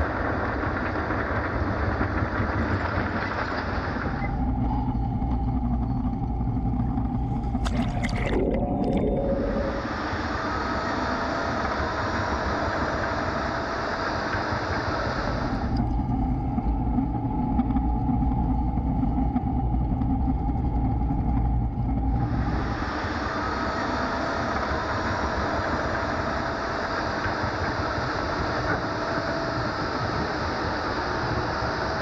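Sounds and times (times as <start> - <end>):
turbine engine running: 0.0 - 32.0
water churning: 7.4 - 10.2.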